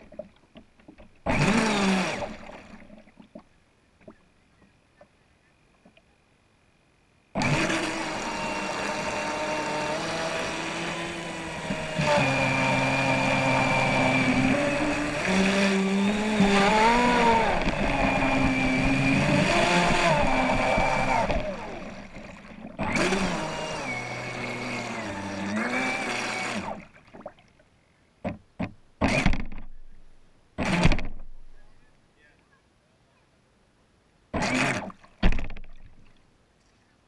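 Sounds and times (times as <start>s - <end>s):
model boat motor whining: 1.2s - 2.9s, 7.4s - 26.9s, 34.4s - 35.5s.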